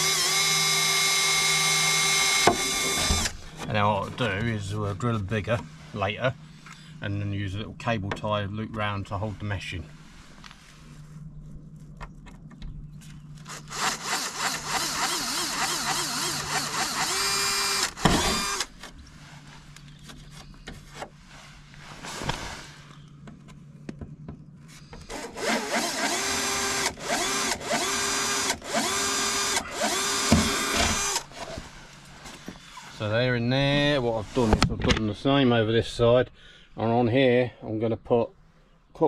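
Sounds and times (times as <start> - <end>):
cordless drill boring holes: 0.0 - 3.5, 13.4 - 18.7, 25.1 - 31.6.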